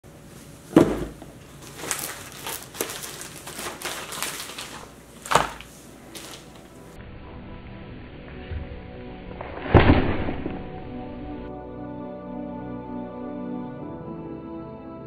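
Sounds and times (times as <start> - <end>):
box thudding on wooden table: 0.7 - 1.2
envelope dropping with thud: 0.7 - 6.6
packaging rustling and tapping: 0.7 - 6.7.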